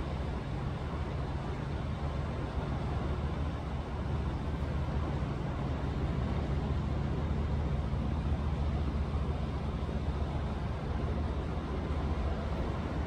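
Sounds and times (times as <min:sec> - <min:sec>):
quiet waves washing: 0:00.0 - 0:13.0.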